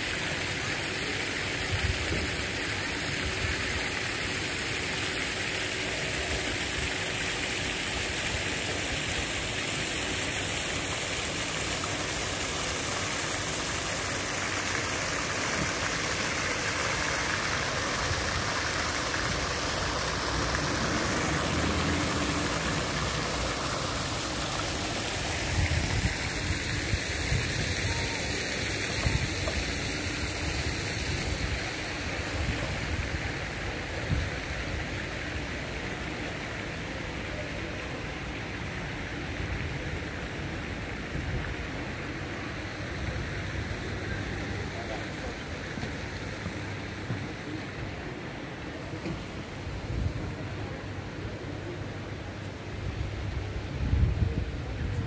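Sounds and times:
steady rushing noise: 0:18.2 - 0:27.8.

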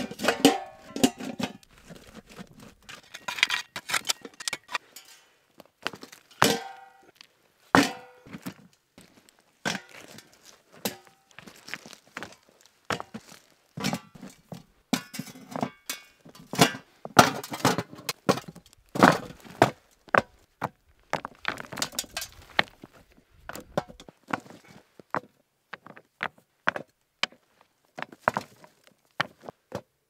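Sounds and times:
gravel scraping: 0:00.0 - 0:05.0, 0:08.3 - 0:14.6, 0:18.1 - 0:24.8
rocks knocking together: 0:18.1 - 0:24.1.

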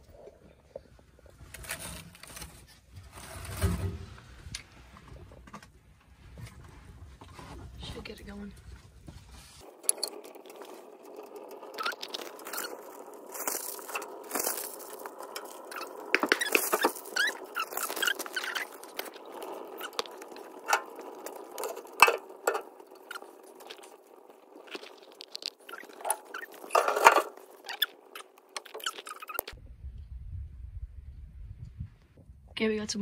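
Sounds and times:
fire crackling and popping: 0:09.6 - 0:29.6.

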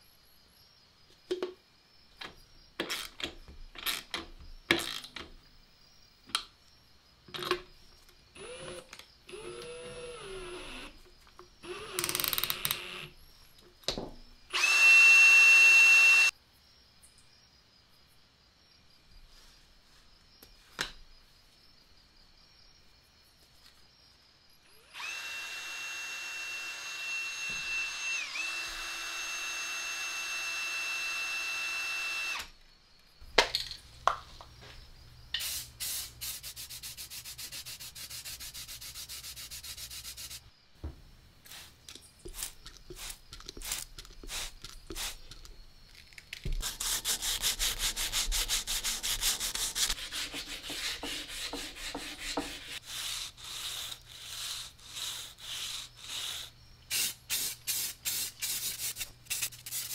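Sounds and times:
heat gun whining: 0:08.4 - 0:10.9, 0:11.6 - 0:13.1, 0:14.5 - 0:16.3, 0:24.8 - 0:32.5
file rasping on metal: 0:46.6 - 0:56.6.

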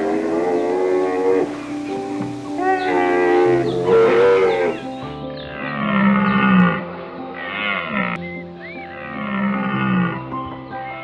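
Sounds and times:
background music: 0:00.0 - 0:11.0
large animal low calls: 0:02.6 - 0:04.9.

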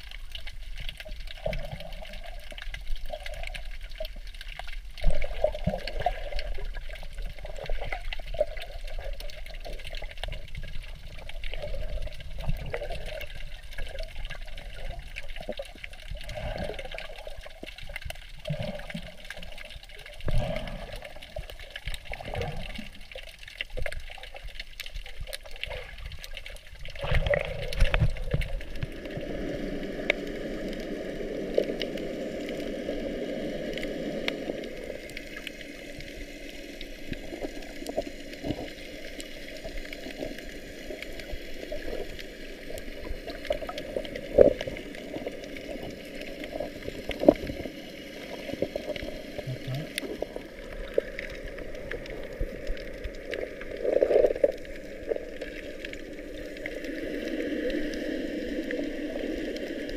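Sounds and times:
underwater knocks and clicks: 0:00.0 - 0:29.1
water gurgling underwater: 0:00.0 - 0:59.9.

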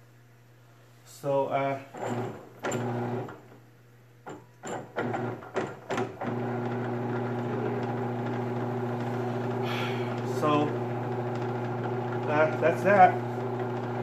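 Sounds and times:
drill press motor stuttering: 0:01.9 - 0:03.4, 0:04.6 - 0:14.0.

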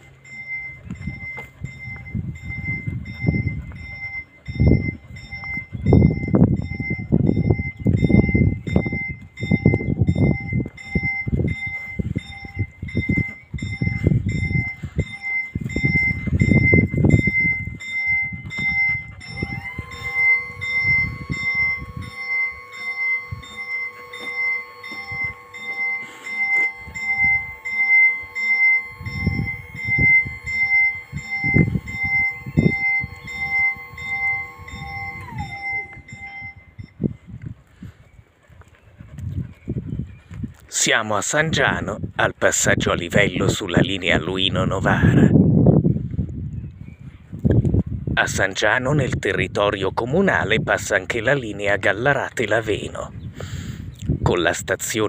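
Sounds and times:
level-crossing warning bell: 0:00.0 - 0:37.2
barrier motor whine: 0:00.0 - 0:37.7.

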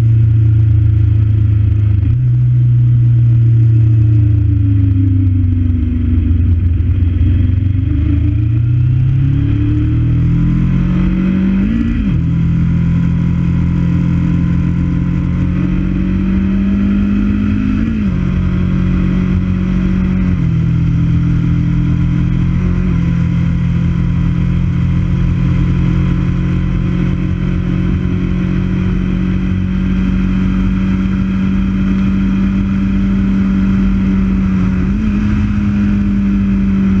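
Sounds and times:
motorcycle engine cruising: 0:00.0 - 0:37.0
wind and road noise: 0:00.0 - 0:37.0.

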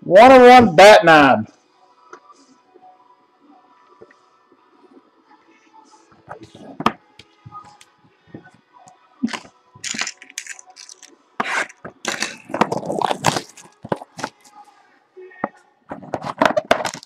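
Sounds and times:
plastic wrap crackling and tearing: 0:09.3 - 0:14.5, 0:16.7 - 0:17.0.

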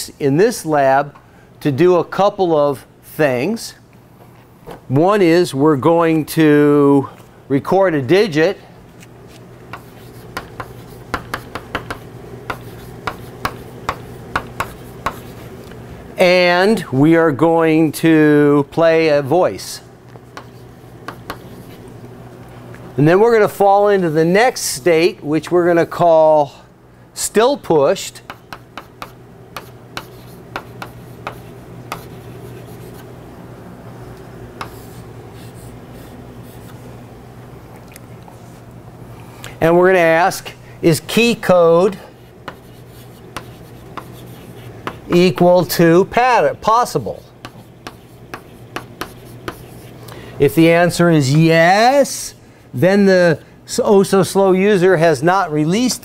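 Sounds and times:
low room hum: 0:00.0 - 0:56.0
chalk tapping and scratching: 0:09.3 - 0:15.5, 0:20.3 - 0:21.9, 0:28.2 - 0:33.1, 0:34.6 - 0:36.8, 0:41.9 - 0:45.5, 0:47.2 - 0:50.0.

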